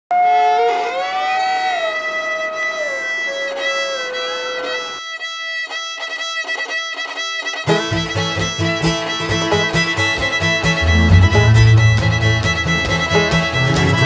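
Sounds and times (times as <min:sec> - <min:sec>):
fiddle playing: 0:02.0 - 0:14.0
string band playing: 0:05.7 - 0:14.0.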